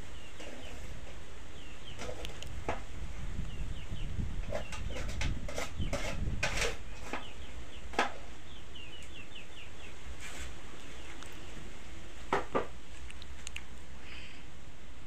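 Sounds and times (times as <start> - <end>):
birds chirping: 0.0 - 11.8
plastic scoop scraping a bowl: 1.9 - 2.9, 4.4 - 7.4.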